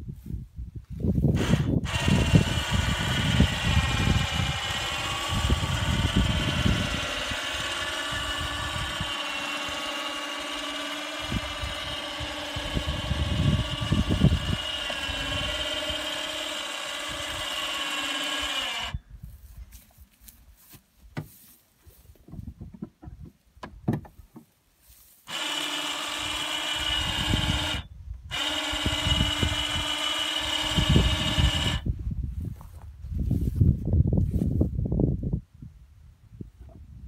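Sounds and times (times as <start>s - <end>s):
electric motor whining: 1.3s - 19.4s, 25.3s - 31.9s.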